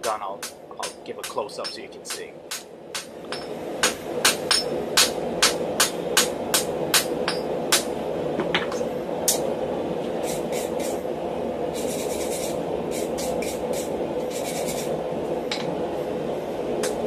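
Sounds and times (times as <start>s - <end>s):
steady low hum: 0.0s - 17.0s
wire brush scrubbing steel: 11.7s - 15.0s.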